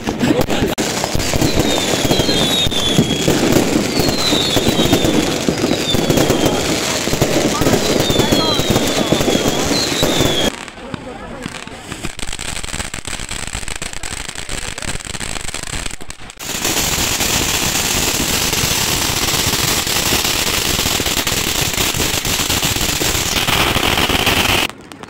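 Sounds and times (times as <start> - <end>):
firework fountain hissing: 0.0 - 25.0
fireworks crackling and popping: 0.0 - 25.0.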